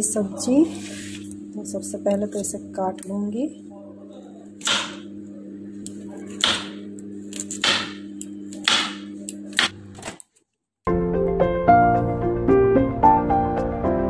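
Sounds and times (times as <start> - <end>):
knife chopping on wooden board: 4.6 - 5.0, 6.4 - 6.8, 7.4 - 10.1.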